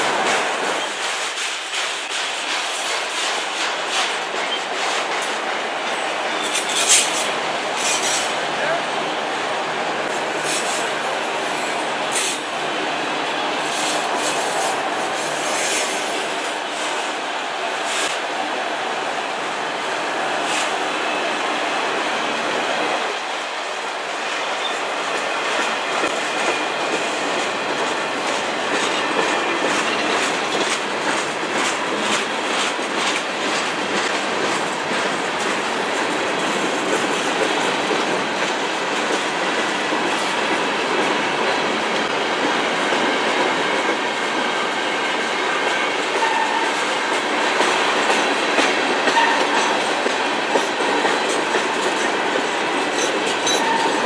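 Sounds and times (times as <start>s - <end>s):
freight train wheels clattering: 0.0s - 8.4s, 24.2s - 54.0s.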